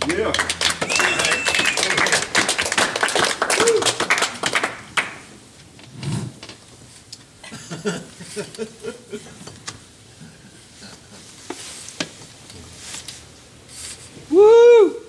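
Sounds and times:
rustling handling noise: 11.1 - 14.3.

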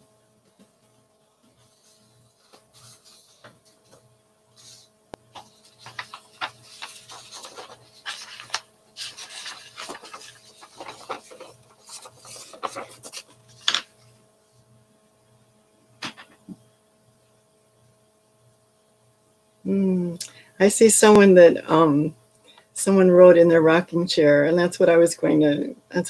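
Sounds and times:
paper rustling and shuffling: 1.5 - 14.1.

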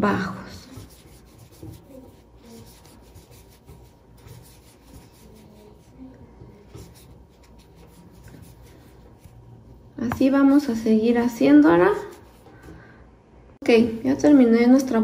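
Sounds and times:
crochet hook scratching yarn: 0.2 - 10.8, 11.5 - 12.4.

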